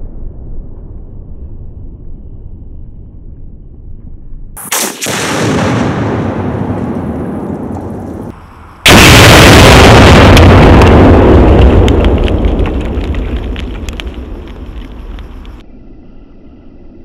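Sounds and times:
low rumble: 0.0s - 4.6s, 5.2s - 17.0s
explosion blast: 4.6s - 15.6s
crackles and pops: 6.2s - 15.6s.

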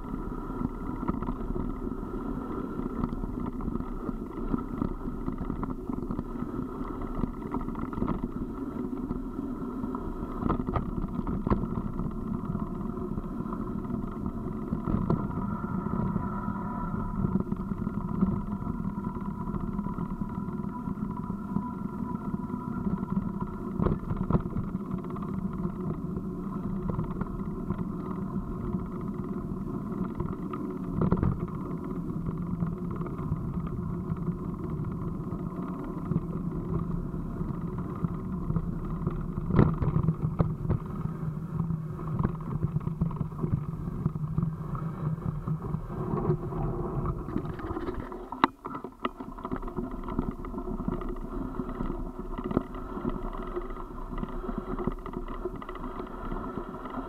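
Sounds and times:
vehicle rolling on gravel: 0.0s - 57.0s.

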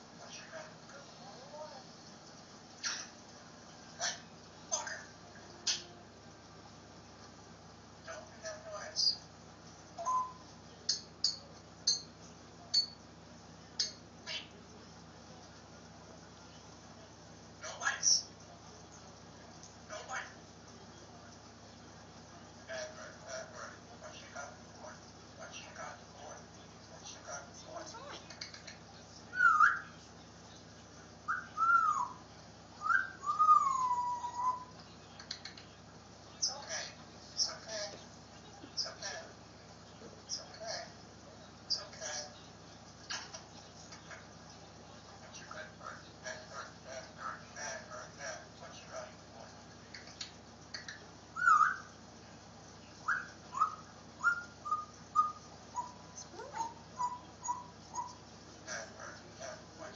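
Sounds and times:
parrot whistling: 10.0s - 10.5s, 29.3s - 30.0s, 31.3s - 32.2s, 32.8s - 34.8s, 50.8s - 51.9s, 53.0s - 58.2s.

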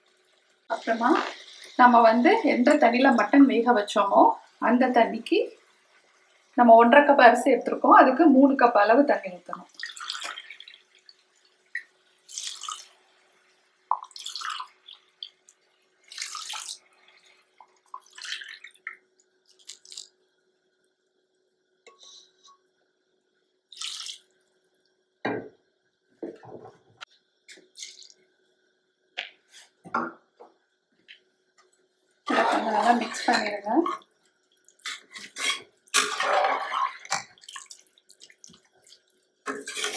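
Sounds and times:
liquid splashing while poured: 9.6s - 13.0s, 13.9s - 15.4s, 16.1s - 16.8s, 17.6s - 20.1s, 23.7s - 24.3s, 35.8s - 39.9s.

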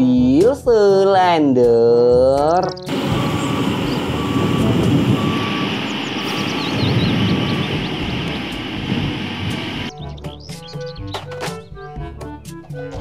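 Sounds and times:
short beeps: 2.9s - 8.6s
road roller engine running: 2.9s - 9.9s.

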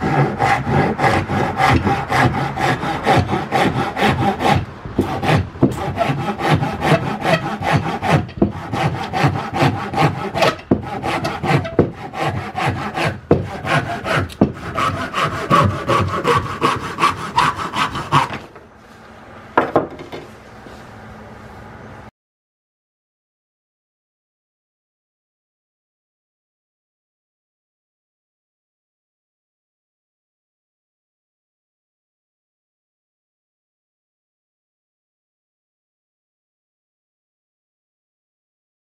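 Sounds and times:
hand saw cutting wood: 0.0s - 18.6s
wooden knock: 19.6s - 20.3s.

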